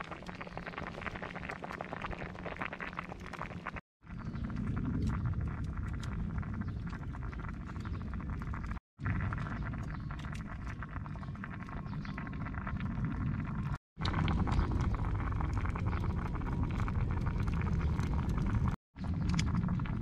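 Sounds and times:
wind rumbling on microphone: 0:04.0 - 0:20.0.

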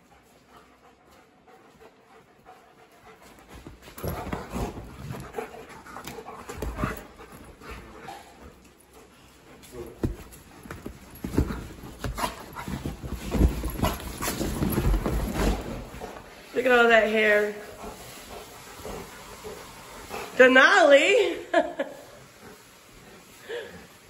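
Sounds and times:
dogs panting heavily: 0:00.0 - 0:16.5, 0:17.6 - 0:20.4
bodies thumping on leather: 0:10.0 - 0:16.0.

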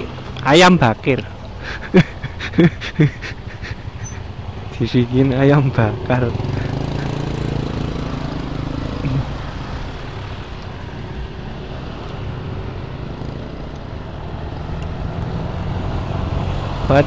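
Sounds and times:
motorcycle engine running: 0:05.5 - 0:10.1.

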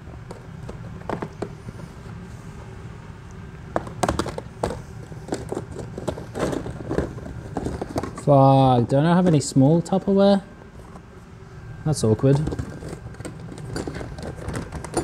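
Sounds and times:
low hum: 0:00.0 - 0:15.0
plastic containers clattering: 0:03.8 - 0:08.3.

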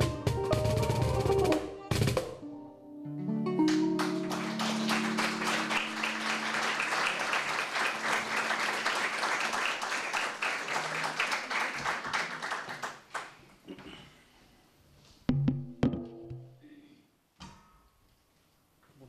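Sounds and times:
audience applause: 0:03.7 - 0:13.4.

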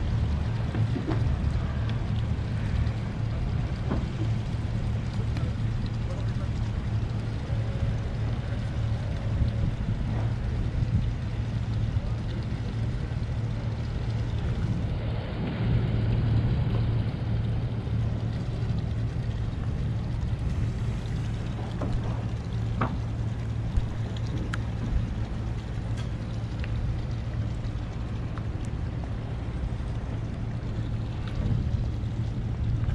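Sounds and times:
boat engine humming: 0:00.0 - 0:32.9
light clicks and knocks: 0:00.5 - 0:02.3, 0:21.0 - 0:27.1.

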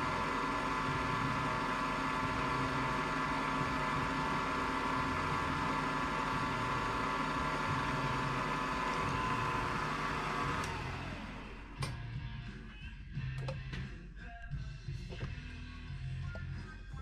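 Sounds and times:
milling machine whine: 0:00.0 - 0:11.9.

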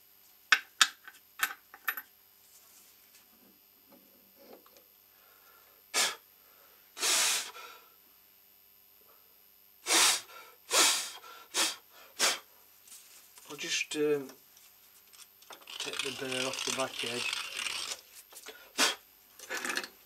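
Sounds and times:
bursts of hissing air: 0:05.9 - 0:06.2, 0:07.0 - 0:07.6, 0:09.8 - 0:12.5, 0:18.7 - 0:19.0.

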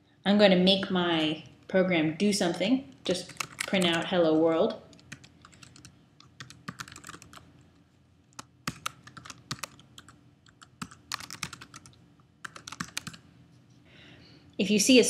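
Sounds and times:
typing on a computer keyboard: 0:03.0 - 0:04.1, 0:04.9 - 0:07.5, 0:08.3 - 0:13.2.

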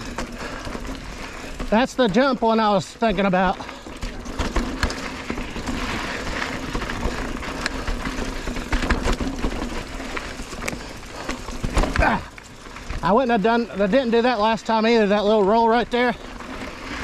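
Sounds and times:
knocks over bumps: 0:00.0 - 0:13.1
bike tyres on dirt trail: 0:00.0 - 0:17.0
chain and bike parts rattling: 0:00.0 - 0:17.0.

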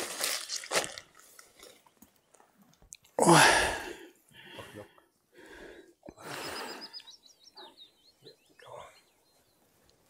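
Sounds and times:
songbird chirping: 0:01.2 - 0:03.2, 0:04.2 - 0:10.0.

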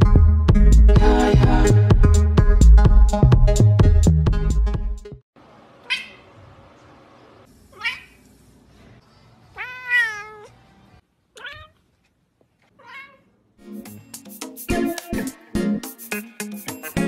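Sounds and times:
cats meowing: 0:05.9 - 0:06.3, 0:07.8 - 0:08.2, 0:09.5 - 0:10.6, 0:11.4 - 0:11.8, 0:12.8 - 0:13.3.

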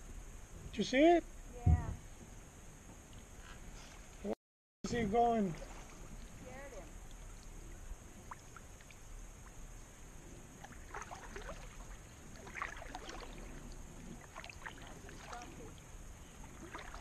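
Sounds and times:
paddle splashes and drips: 0:05.2 - 0:09.6, 0:10.5 - 0:17.0.

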